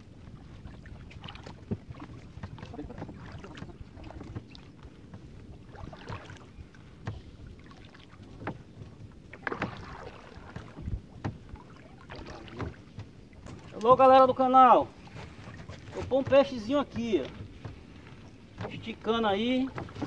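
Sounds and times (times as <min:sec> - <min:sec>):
water lapping and splashing: 0:00.0 - 0:20.0
knocks against boat hull: 0:10.6 - 0:11.6, 0:15.6 - 0:20.0.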